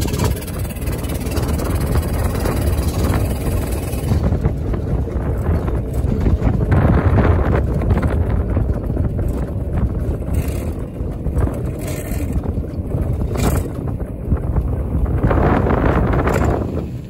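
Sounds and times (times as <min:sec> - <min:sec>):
steam car low rumble: 0:00.0 - 0:17.0
wind buffeting microphone: 0:00.0 - 0:17.0.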